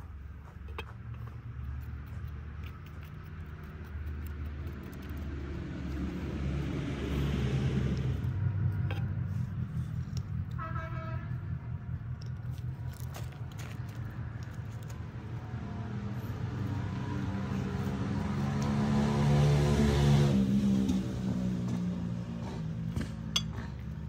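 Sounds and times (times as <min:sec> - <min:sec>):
vehicle engine running: 0:00.0 - 0:24.0
horn toot: 0:10.5 - 0:11.4.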